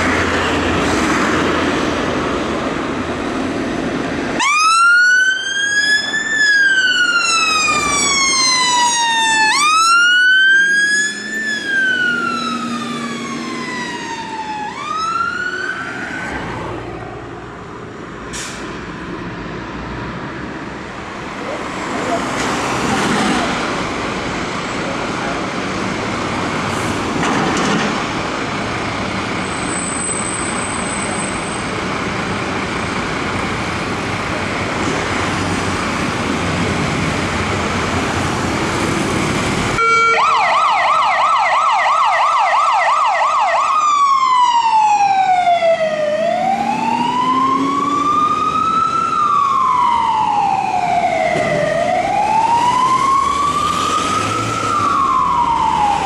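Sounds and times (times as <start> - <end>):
traffic and diesel engines: 0.0 - 56.0
fire engine siren: 4.2 - 17.3, 37.2 - 56.0.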